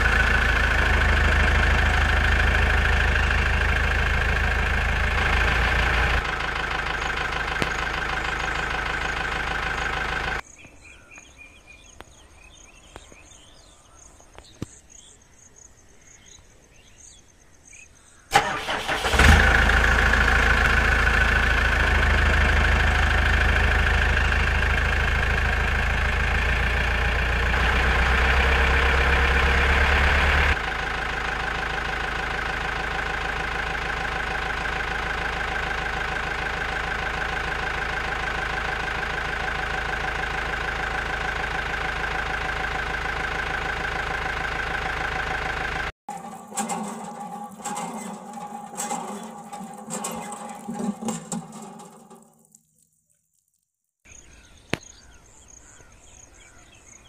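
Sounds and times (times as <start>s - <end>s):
tractor engine running: 0.0s - 10.4s, 18.3s - 53.0s.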